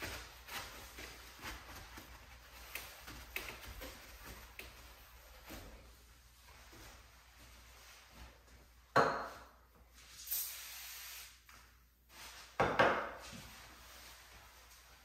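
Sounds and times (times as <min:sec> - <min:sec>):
cloth wiping glass door: 0:00.0 - 0:08.8, 0:13.2 - 0:15.0
aerosol spray hiss: 0:10.1 - 0:11.5.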